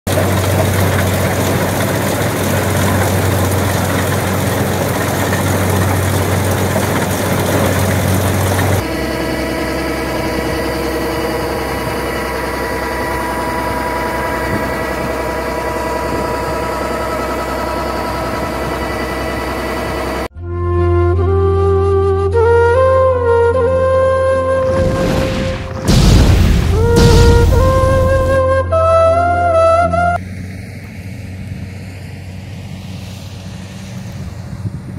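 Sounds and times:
combine harvester running: 0.0s - 20.4s, 24.1s - 34.9s
grain auger hum with steady tones: 0.1s - 34.9s.

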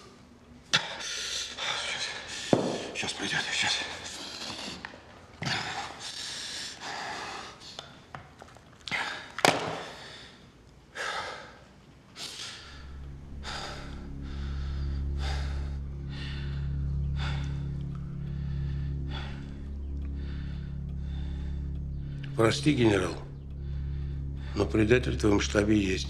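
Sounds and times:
low music drone: 0.0s - 7.4s, 12.4s - 26.0s
man breathing heavily: 0.7s - 3.0s, 3.6s - 8.1s, 8.9s - 24.6s.

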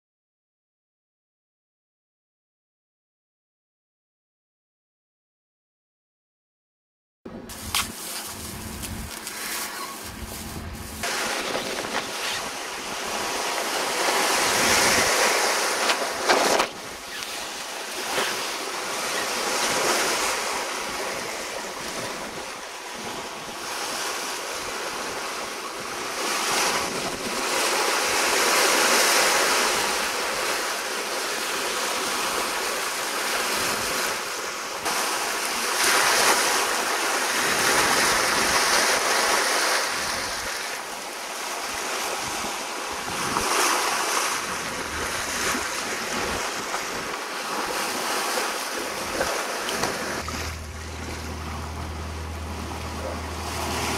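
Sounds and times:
water rushing along hull: 7.5s - 53.9s
wind buffeting microphone: 10.0s - 18.2s.

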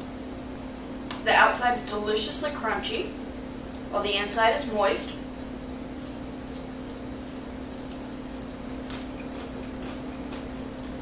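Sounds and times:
steady low hum: 0.0s - 11.0s
crunchy chewing: 6.0s - 11.0s.

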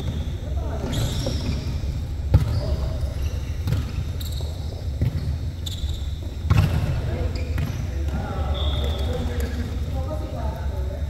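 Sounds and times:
short high squeaks: 0.8s - 1.8s, 5.6s - 6.2s.

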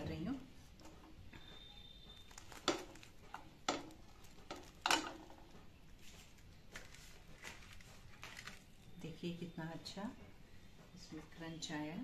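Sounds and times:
clattering knocks of pan and utensils: 2.6s - 5.5s.

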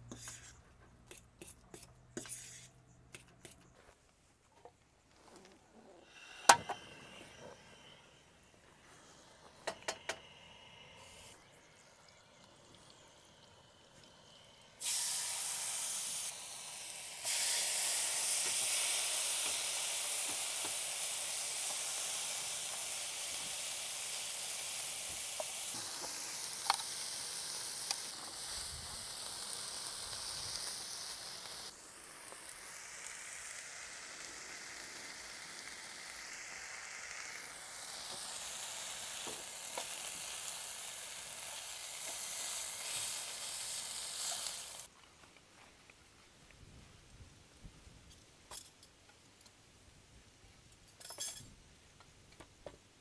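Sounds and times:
food sizzling in a pan: 8.9s - 44.9s.

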